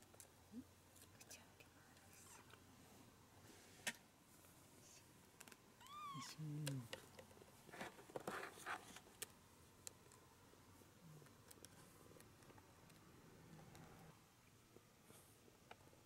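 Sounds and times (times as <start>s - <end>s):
kitten mewing: 5.8s - 6.9s
rustles and light knocks: 6.8s - 9.4s.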